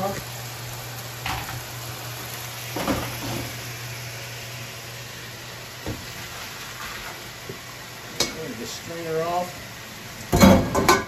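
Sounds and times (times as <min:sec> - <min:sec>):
pot knock: 0:10.3 - 0:11.0.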